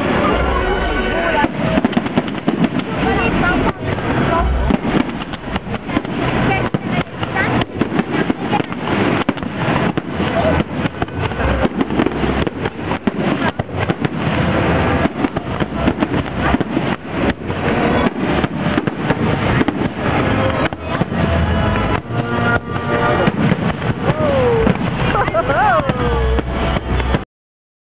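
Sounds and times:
fireworks bangs and crackling: 0.0 - 27.3.

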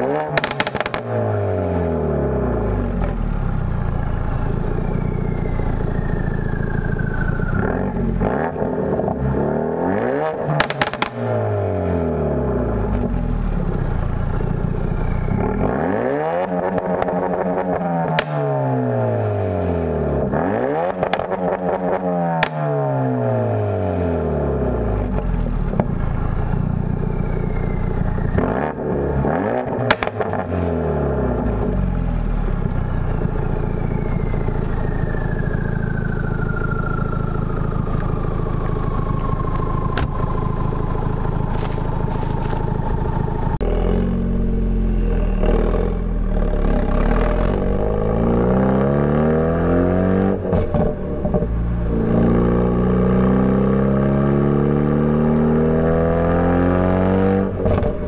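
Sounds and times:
car engine revving: 0.0 - 58.0
exhaust cracks: 0.1 - 1.3, 4.7 - 11.6, 25.0 - 31.8, 32.5 - 44.2, 57.5 - 58.0
car engine idling: 2.0 - 9.9, 12.2 - 15.9, 24.6 - 43.6.

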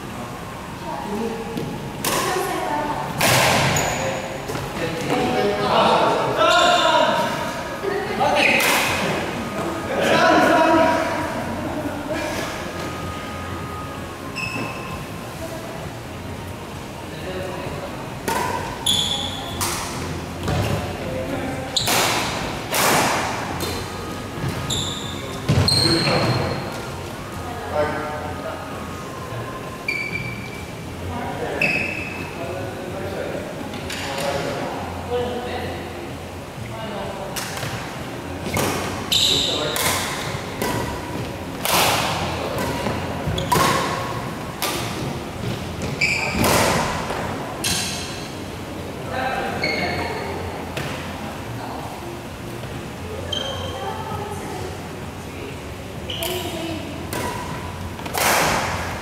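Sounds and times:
shoe squeak: 3.6 - 4.4, 6.4 - 7.0, 14.3 - 15.1, 18.8 - 19.6, 21.8 - 22.0, 24.4 - 26.7, 29.8 - 30.7, 31.6 - 32.4, 38.4 - 39.8, 43.0 - 43.9, 45.8 - 46.4, 49.6 - 50.2, 53.2 - 53.9, 56.1 - 56.5
rackets hitting shuttlecock: 39.7 - 45.1, 57.1 - 58.8.

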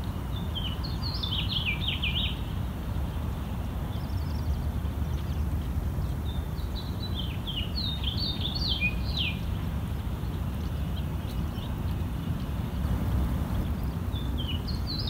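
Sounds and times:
songbird chirping: 0.0 - 15.0
steady low rumble: 9.7 - 15.0.

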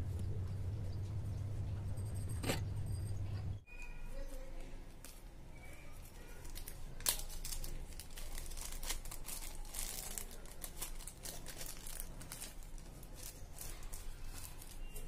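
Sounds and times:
plastic bag crinkling: 6.1 - 15.0.

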